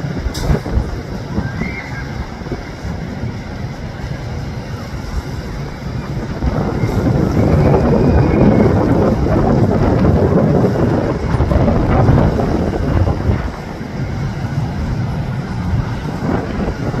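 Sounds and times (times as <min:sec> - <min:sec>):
jet engines roaring: 0:00.0 - 0:17.0
wind buffeting microphone: 0:00.0 - 0:17.0.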